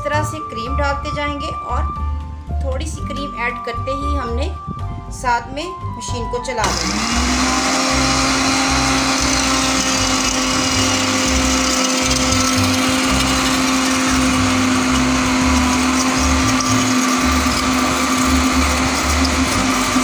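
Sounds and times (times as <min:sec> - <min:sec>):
electric blender running: 0:06.6 - 0:20.0.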